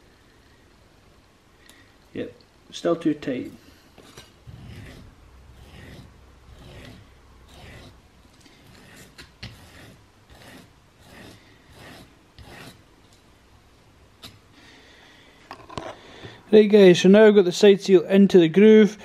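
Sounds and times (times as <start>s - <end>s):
metal scraping on sharpening stone: 4.0s - 8.0s, 8.6s - 12.8s.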